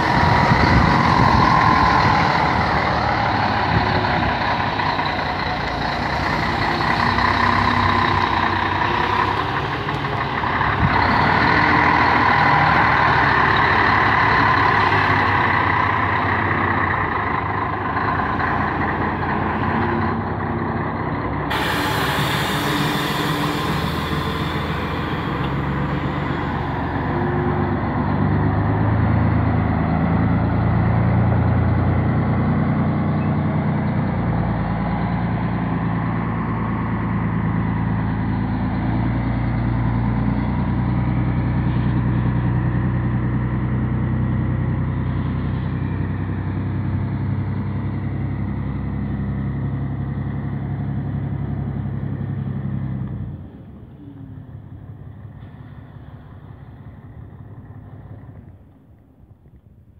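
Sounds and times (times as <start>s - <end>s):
diesel truck engine under load: 0.0s - 59.9s
air hissing: 21.5s - 26.4s.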